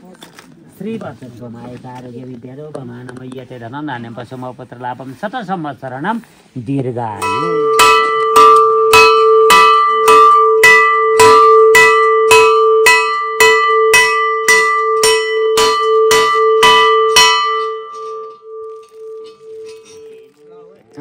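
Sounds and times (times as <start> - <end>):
temple bell ringing: 7.2 - 20.9.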